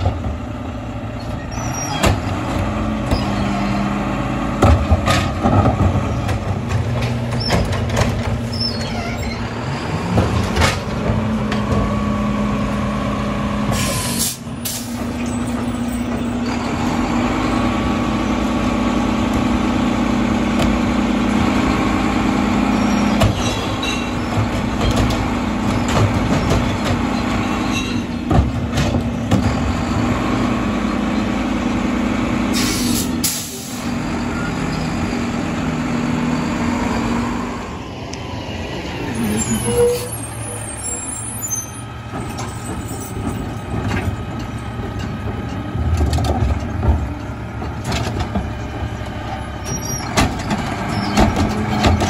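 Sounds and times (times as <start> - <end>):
garbage truck engine revving: 0.0 - 52.0
carts knocking and clattering: 4.6 - 8.5, 23.2 - 29.8, 42.1 - 48.7, 50.0 - 52.0.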